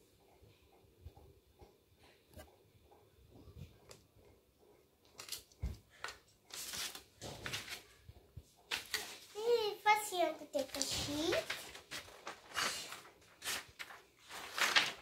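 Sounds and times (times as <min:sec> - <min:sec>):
paper and bedspread rustling: 0:05.2 - 0:08.1, 0:08.7 - 0:15.0.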